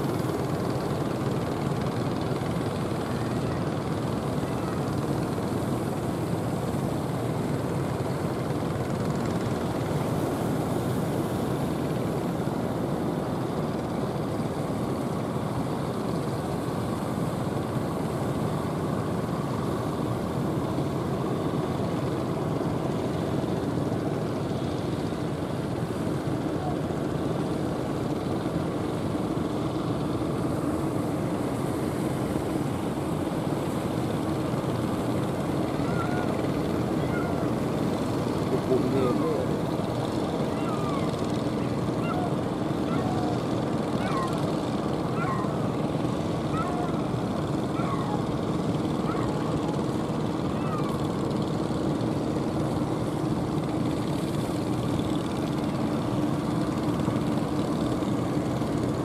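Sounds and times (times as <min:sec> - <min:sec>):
boat engines droning: 0:00.0 - 0:59.0.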